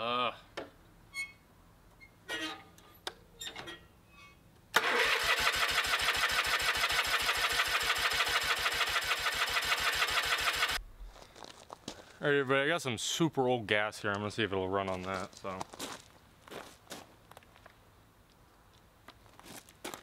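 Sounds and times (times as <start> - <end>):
electric starter cranking engine: 4.8 - 10.8.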